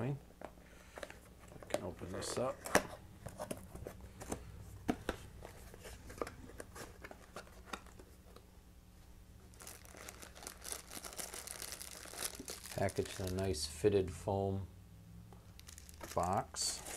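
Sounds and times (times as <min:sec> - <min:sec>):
packing rustling: 0:09.5 - 0:13.5, 0:15.6 - 0:16.9.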